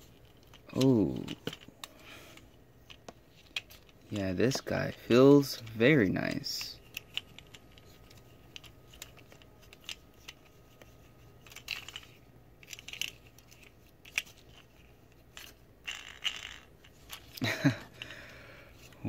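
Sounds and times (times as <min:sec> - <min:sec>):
plastic parts rustling: 0:00.0 - 0:19.0
plastic toy parts clicking: 0:00.1 - 0:01.9, 0:06.7 - 0:17.4.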